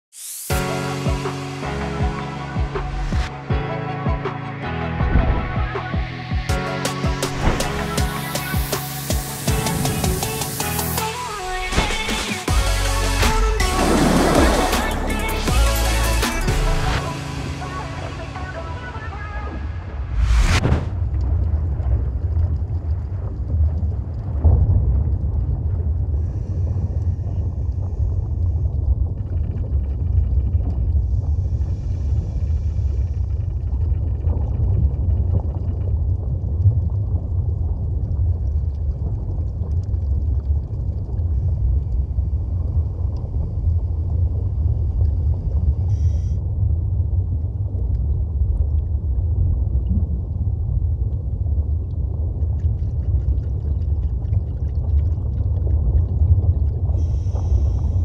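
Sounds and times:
underwater low rumble: 4.9 - 6.5, 18.4 - 58.0.

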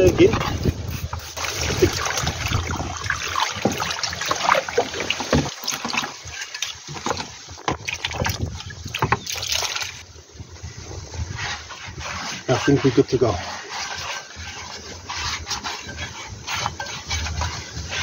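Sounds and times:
scrubbing strokes: 0.0 - 10.0, 11.1 - 18.0
liquid pouring from jug: 1.2 - 10.0
liquid sloshing in plastic basin: 1.3 - 10.0.

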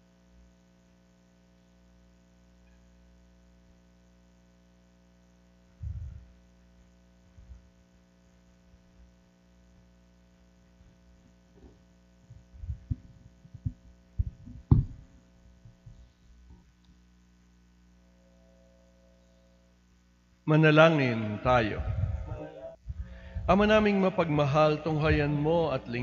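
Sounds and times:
electrical mains hum: 0.0 - 26.0
low thumps and knocks: 11.6 - 16.0, 25.0 - 25.4.

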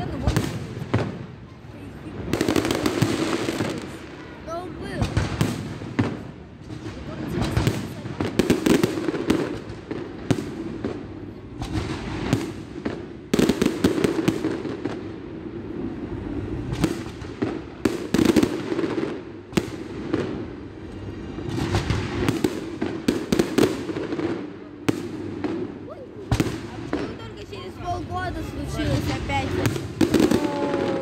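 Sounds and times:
firework bangs: 0.0 - 31.0.

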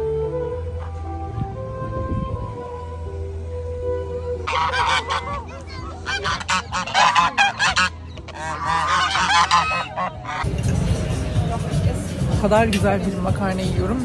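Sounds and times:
geese honking: 4.4 - 10.5.

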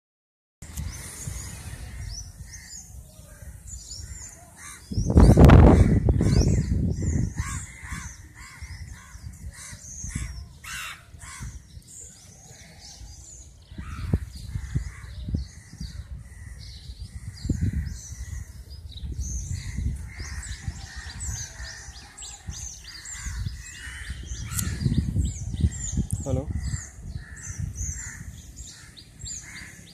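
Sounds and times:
small birds chirping: 0.6 - 29.9
crows cawing: 4.0 - 6.8, 7.4 - 11.6, 19.6 - 24.9, 26.5 - 29.9.

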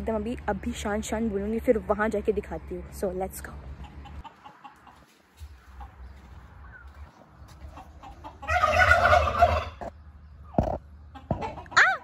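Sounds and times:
turkeys gobbling: 3.8 - 6.9, 7.5 - 9.9.

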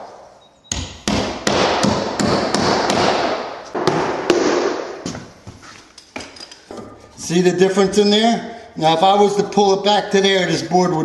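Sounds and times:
hammer driving nails: 0.7 - 5.2.

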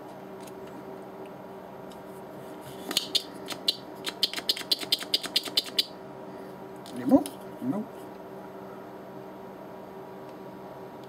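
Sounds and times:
faint steady hum: 0.0 - 11.0
small sharp clicks and ticks: 2.9 - 5.9.

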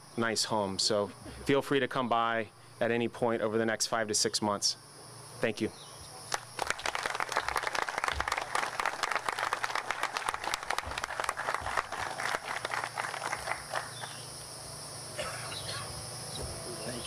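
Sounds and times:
crowd applauding: 6.3 - 14.2.

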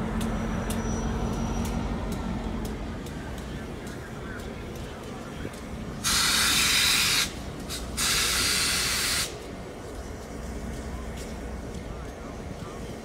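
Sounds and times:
steam locomotive hissing blasts: 6.0 - 9.5.

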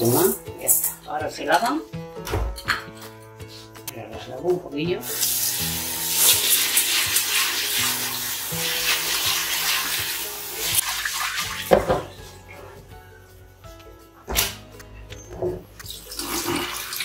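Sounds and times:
tap water running into pot: 5.0 - 12.1, 15.8 - 17.0.

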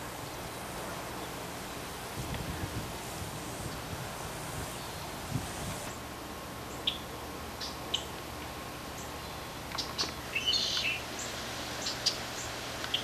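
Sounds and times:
small birds chirping: 3.6 - 13.0
bird twittering call: 9.0 - 13.0.

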